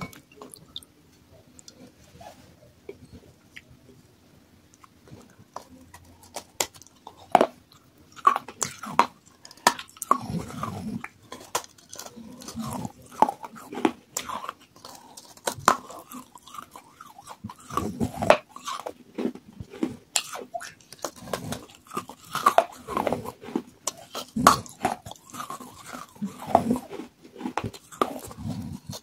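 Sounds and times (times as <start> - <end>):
clay pieces crunching between teeth: 5.6 - 29.0.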